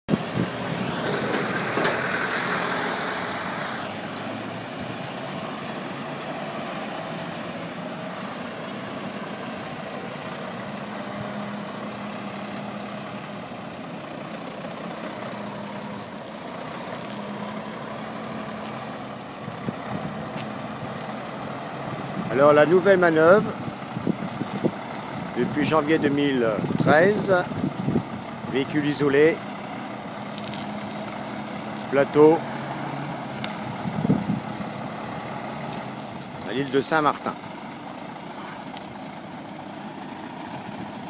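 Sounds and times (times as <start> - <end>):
truck diesel engine running: 0.1 - 41.0
hiss: 0.6 - 4.0.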